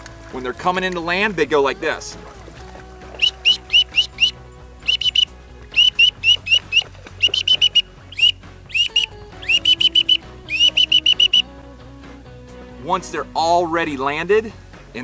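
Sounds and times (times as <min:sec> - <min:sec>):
background music: 0:00.0 - 0:15.0
duck call whistles: 0:03.2 - 0:11.5.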